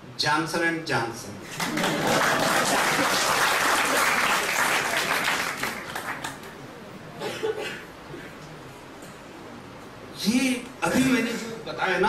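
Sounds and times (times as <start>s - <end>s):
audience applauding: 1.5s - 6.6s.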